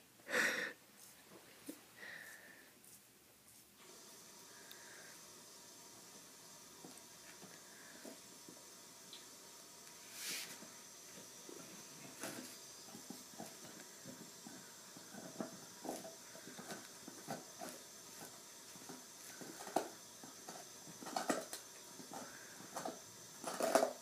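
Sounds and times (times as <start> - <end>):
dog chewing on a bone: 12.0 - 24.0.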